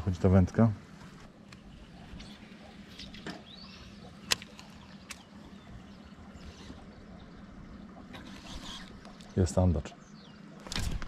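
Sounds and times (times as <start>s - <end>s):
reel clicks: 1.4s - 5.6s, 8.1s - 9.3s.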